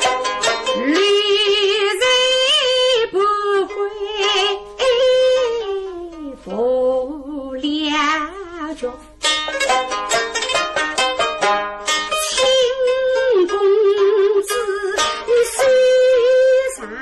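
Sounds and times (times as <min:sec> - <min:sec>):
plucked string instruments: 0:00.0 - 0:17.0.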